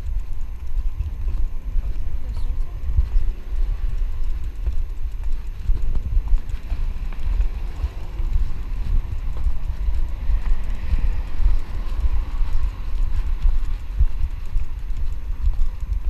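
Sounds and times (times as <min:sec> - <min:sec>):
footsteps thumping on camera: 0:00.0 - 0:16.0
car passing: 0:06.4 - 0:14.8.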